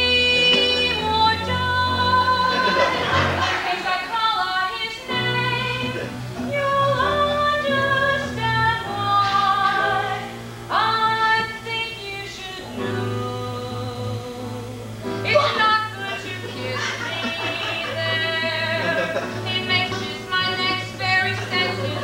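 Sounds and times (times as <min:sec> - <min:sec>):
instrumental accompaniment with bass: 0:00.0 - 0:03.6
person singing long notes: 0:04.4 - 0:22.0.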